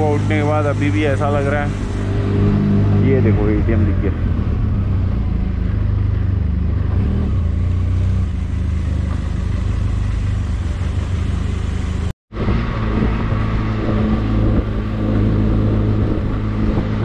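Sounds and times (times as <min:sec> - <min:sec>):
motorcycle engine running: 0:00.0 - 0:12.1.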